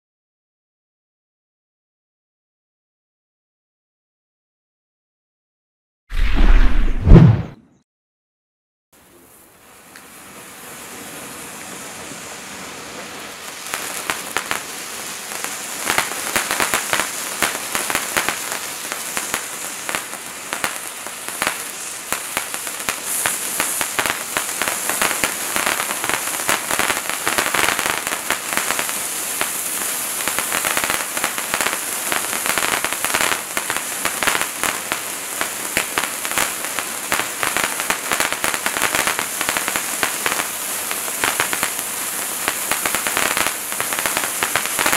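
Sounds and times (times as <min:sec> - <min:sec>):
firework fountain hissing: 0:09.0 - 0:44.9.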